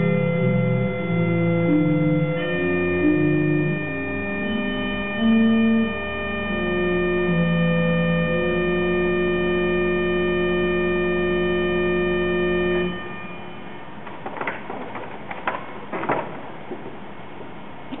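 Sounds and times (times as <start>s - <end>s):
pipe organ chord: 0.0s - 14.0s
soft knocks: 14.0s - 18.0s.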